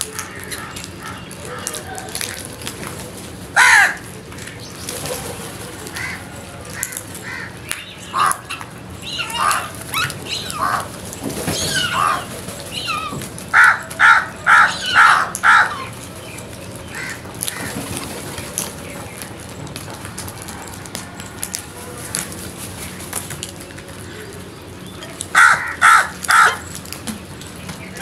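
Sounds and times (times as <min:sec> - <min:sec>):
crows cawing: 0:00.1 - 0:02.5, 0:03.5 - 0:04.5, 0:05.8 - 0:16.0, 0:16.8 - 0:17.8, 0:25.3 - 0:26.8.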